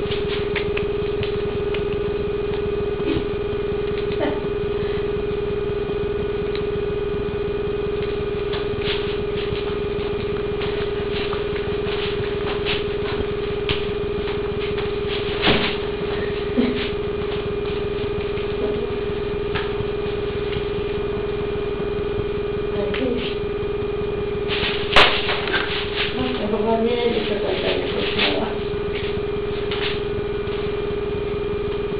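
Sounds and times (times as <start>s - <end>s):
steady electrical hum: 0.0s - 31.9s.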